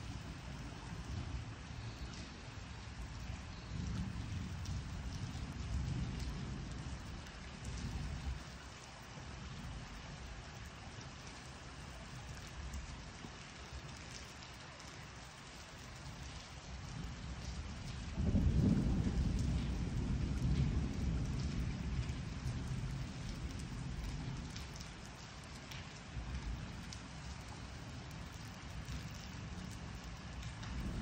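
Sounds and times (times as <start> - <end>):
steady rain: 0.0 - 31.0
rolling thunder: 17.7 - 24.4, 30.4 - 31.0.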